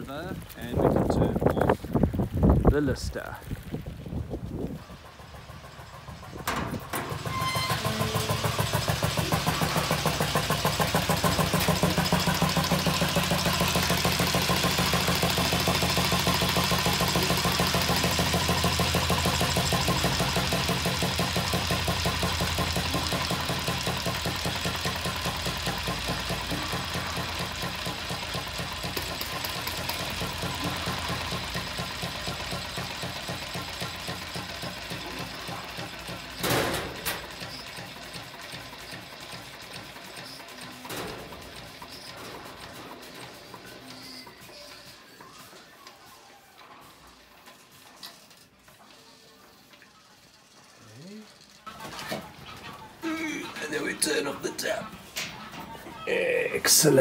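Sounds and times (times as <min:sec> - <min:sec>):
diesel engine running: 0:04.0 - 0:44.4.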